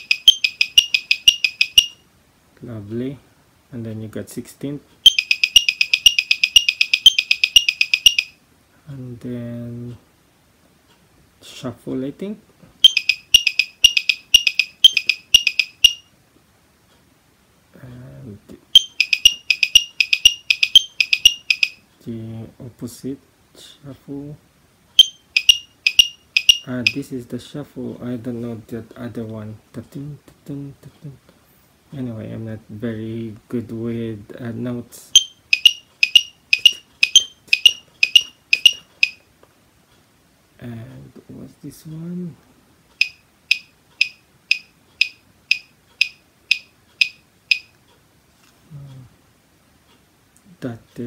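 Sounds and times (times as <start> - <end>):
metronome beeping: 0.0 - 2.0, 5.0 - 8.4, 12.8 - 16.1, 18.7 - 21.8, 25.0 - 27.2, 35.1 - 39.3, 43.0 - 47.8.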